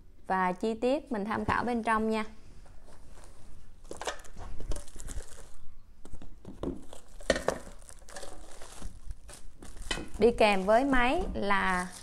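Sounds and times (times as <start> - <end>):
plastic and cardboard crinkling: 2.7 - 12.0.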